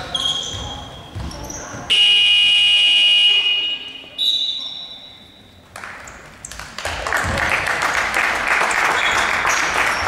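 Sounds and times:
sneaker squeaks on court: 0:00.0 - 0:01.9
spectators clapping: 0:05.7 - 0:10.0.

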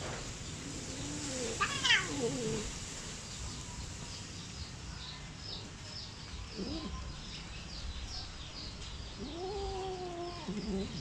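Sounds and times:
cat meowing: 0:01.1 - 0:02.7.

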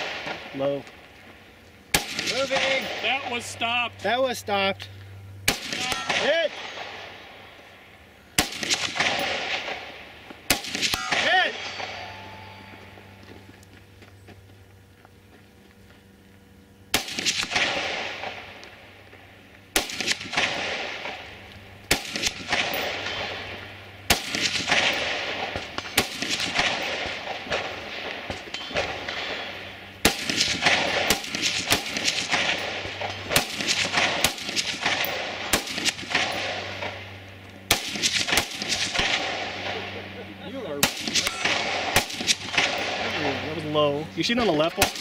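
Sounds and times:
rifle shots with echo: 0:00.0 - 0:00.7, 0:01.9 - 0:03.8, 0:05.4 - 0:07.5, 0:08.4 - 0:12.8, 0:16.9 - 0:18.9, 0:19.7 - 0:43.8, 0:44.4 - 0:45.0.

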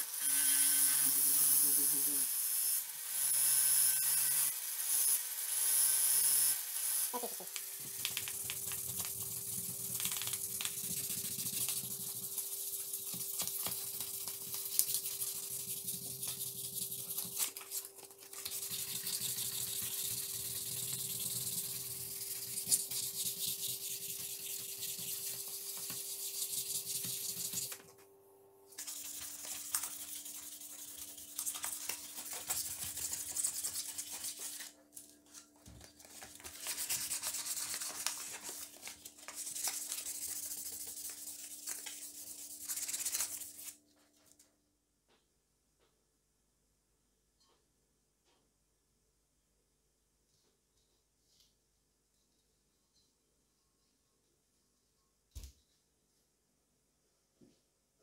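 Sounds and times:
sandpaper rubbing on metal: 0:09.2 - 0:17.6, 0:18.5 - 0:27.7, 0:28.8 - 0:34.7, 0:36.5 - 0:43.8.

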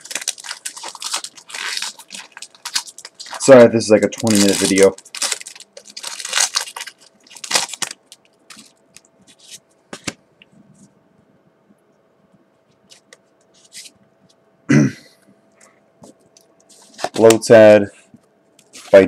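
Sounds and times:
trading cards and wrapper rustling: 0:00.0 - 0:10.2, 0:18.6 - 0:19.0.

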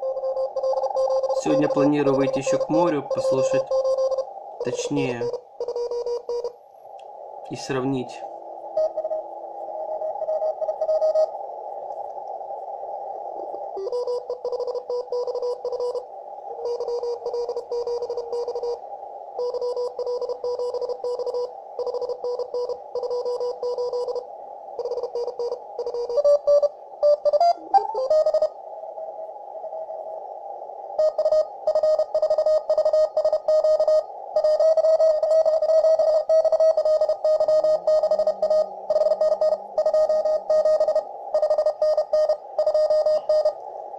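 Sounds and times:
morse code beeps: 0:00.0 - 0:06.6, 0:10.0 - 0:11.3, 0:13.8 - 0:16.0, 0:16.6 - 0:18.8, 0:19.4 - 0:24.2, 0:24.8 - 0:28.5, 0:31.0 - 0:43.6
radio hiss: 0:00.0 - 0:43.9.

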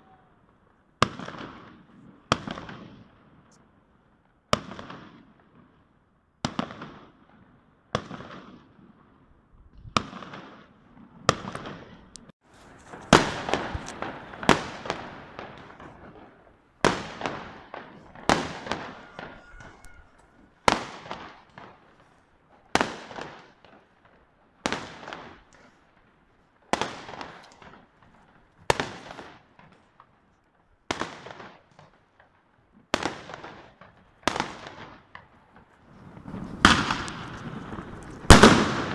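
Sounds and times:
fireworks bangs with echo: 0:00.0 - 0:30.1, 0:30.8 - 0:38.9
fireworks crackling: 0:09.7 - 0:38.9.

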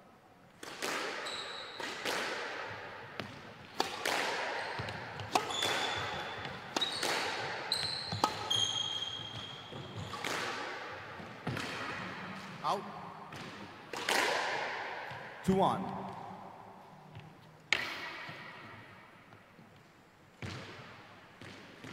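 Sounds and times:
squash ball hits echoing: 0:00.6 - 0:16.6, 0:17.7 - 0:19.3, 0:20.4 - 0:21.9
shoes squeaking on wooden floor: 0:04.6 - 0:10.2.

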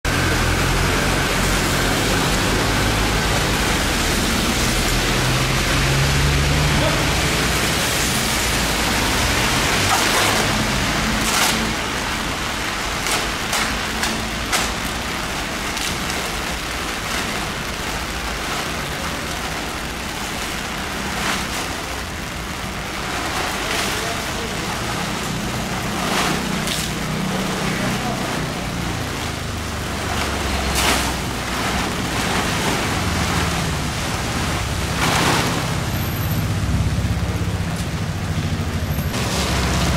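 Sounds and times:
rain on wet street: 0:00.0 - 0:39.9
vehicle engine rumble: 0:00.0 - 0:39.9
plastic cover crackling: 0:08.1 - 0:35.9.

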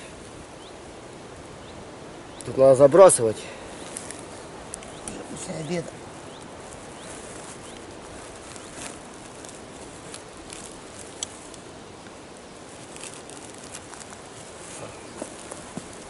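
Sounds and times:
outdoor background hiss: 0:00.0 - 0:16.0
fishing tackle clicking and rustling: 0:06.4 - 0:11.7, 0:12.7 - 0:16.0.

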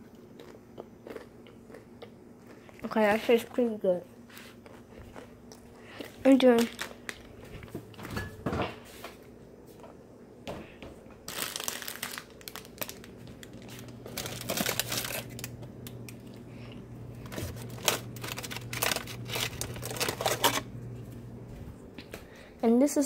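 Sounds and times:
low steady hum: 0:00.0 - 0:23.0
plastic wrappers crinkling: 0:05.9 - 0:07.7, 0:11.2 - 0:16.4, 0:17.2 - 0:20.8.

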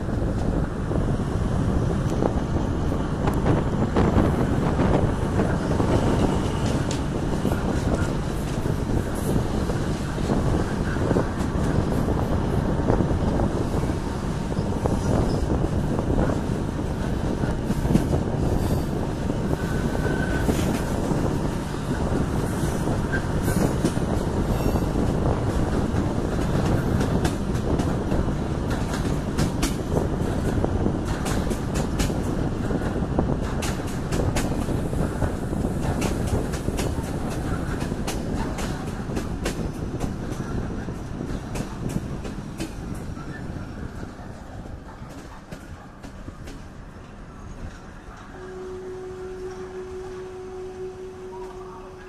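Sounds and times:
clickety-clack over rail joints: 0:00.0 - 0:48.6
train wheels rumbling: 0:00.0 - 0:52.0.

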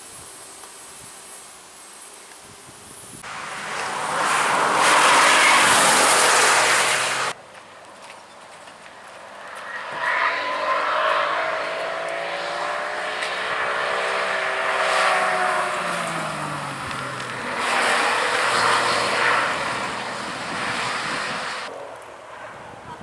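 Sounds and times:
race car engine passing by: 0:03.2 - 0:07.4, 0:09.4 - 0:21.7.

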